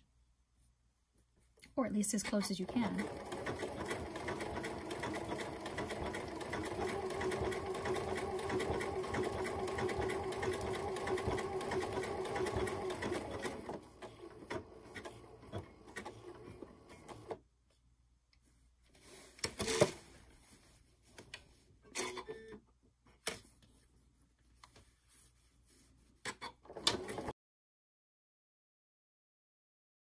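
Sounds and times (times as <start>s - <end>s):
sewing machine running: 2.6s - 17.4s, 26.7s - 27.3s.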